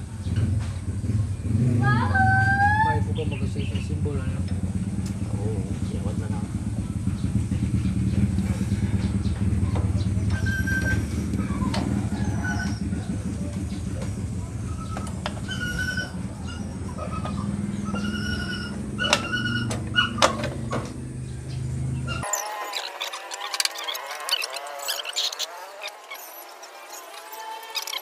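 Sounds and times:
steady low drone: 3.9 - 15.6.

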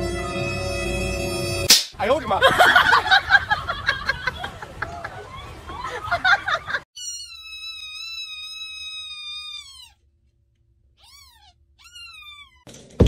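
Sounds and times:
kitten mewing: 7.0 - 10.0, 11.0 - 12.6.

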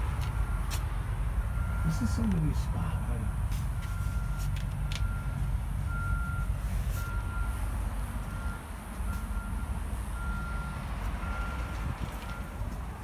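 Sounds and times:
continuous low rumble: 0.0 - 13.0
reversing alarm beeping: 1.5 - 2.2, 3.9 - 7.7, 8.3 - 12.5.

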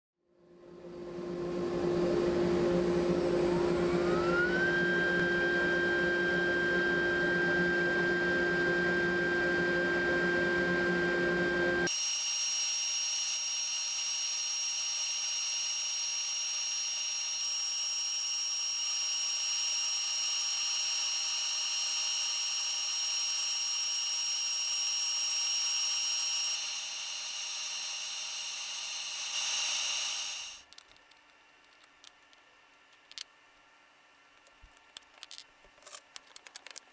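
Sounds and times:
low hum: 0.3 - 11.9
router spindle whine: 0.7 - 30.6
router bit cutting wood: 3.2 - 10.5, 11.1 - 30.6.

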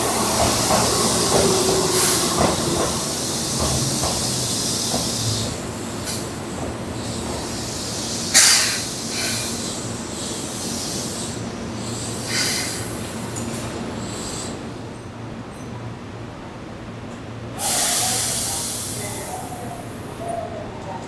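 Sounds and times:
electric train humming: 0.0 - 14.7
train air hiss: 0.0 - 14.8, 17.6 - 20.3.

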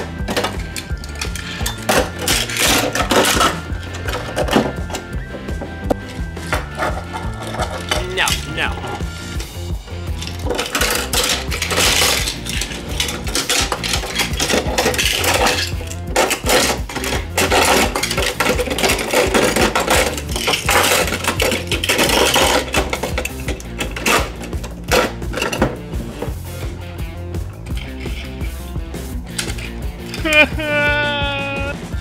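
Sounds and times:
plastic garage door: 0.0 - 4.9, 10.2 - 25.8
toy cars clattering: 0.0 - 26.4, 27.6 - 28.7, 29.3 - 30.5.

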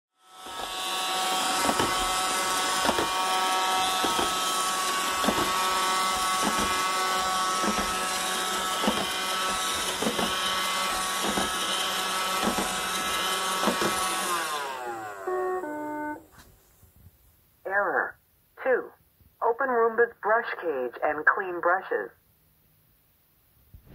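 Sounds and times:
robot vacuum high whine: 0.2 - 16.4
vacuum brush knocking: 0.4 - 16.4.

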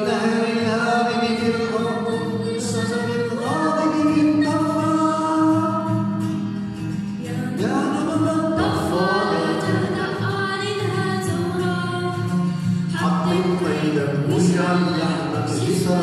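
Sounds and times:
strummed acoustic guitar: 0.0 - 16.0
girl singing slow song: 1.6 - 4.8, 7.1 - 14.0.

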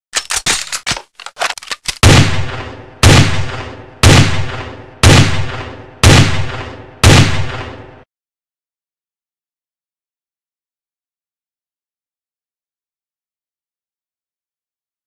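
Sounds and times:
rifle mechanism clicks: 0.1 - 2.1
rifle shots echoing: 0.2 - 8.0.

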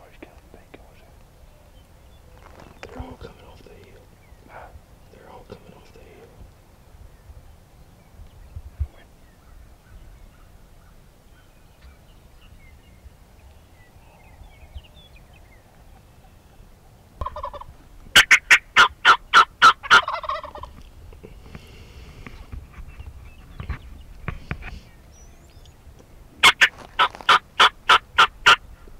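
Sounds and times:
turkey gobbling: 17.2 - 20.8, 26.4 - 28.6.

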